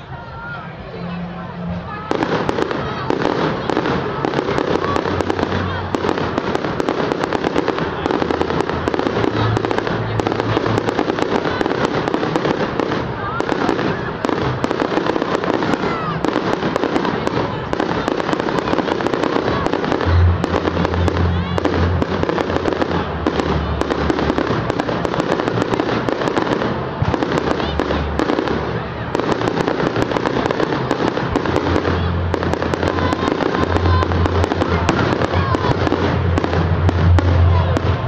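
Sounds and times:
fireworks bursting and crackling: 0.0s - 38.0s.

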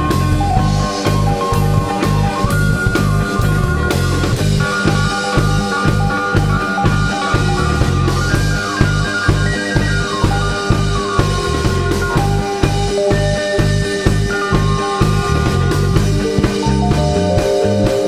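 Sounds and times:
drum kit beat: 0.0s - 18.0s
electric guitars: 0.0s - 18.0s.

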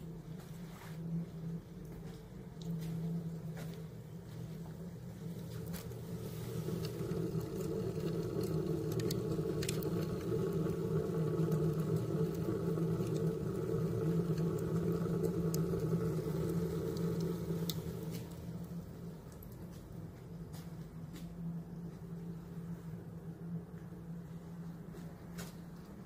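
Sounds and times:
fire rumbling in stove pipe: 0.0s - 20.4s
burning wood crackling: 0.3s - 21.2s.

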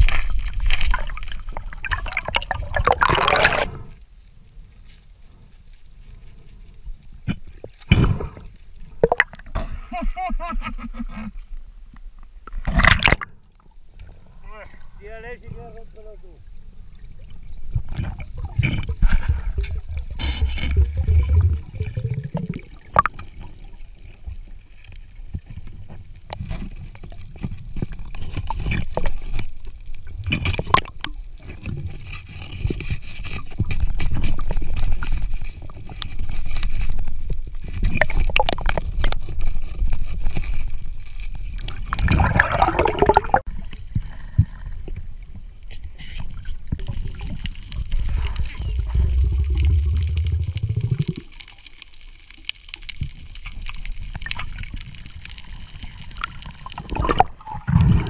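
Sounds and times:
knocks and scrapes underwater: 0.0s - 4.0s, 6.0s - 9.9s, 12.4s - 13.4s, 17.3s - 58.0s
gurgling bursts: 1.6s - 3.9s, 41.9s - 43.4s, 47.1s - 51.5s, 56.2s - 58.0s
underwater water rumble: 15.8s - 58.0s.

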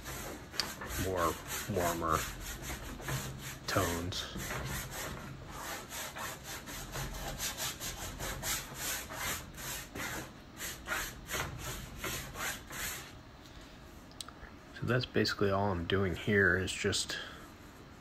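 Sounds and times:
paint rubbed on canvas: 0.0s - 13.2s.

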